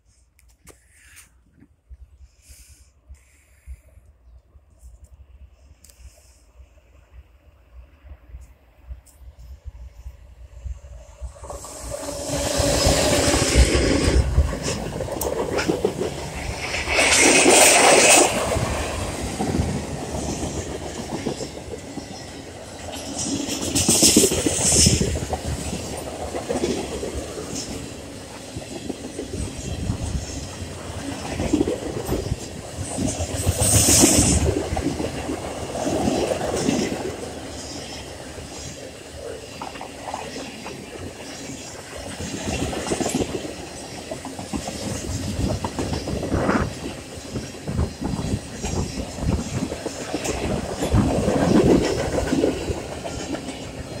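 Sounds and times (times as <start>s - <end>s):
train wheels clattering over rail joints: 11.4s - 37.3s, 39.6s - 54.0s.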